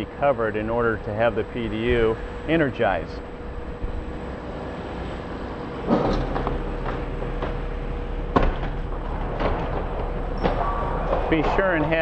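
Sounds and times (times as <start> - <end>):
cargo pallet rumbling: 0.0 - 12.0
clunks and rattles: 5.7 - 12.0.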